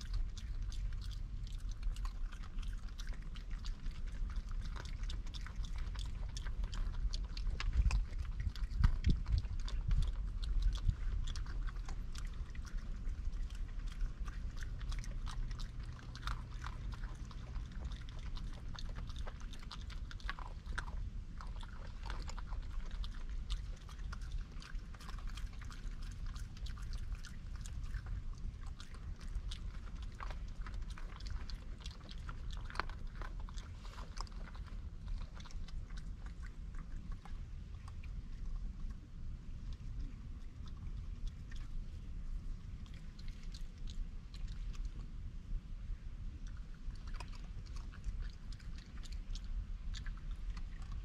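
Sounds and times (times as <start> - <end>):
raccoons chewing peanuts: 0.0 - 51.0
steady low hum: 0.0 - 51.0.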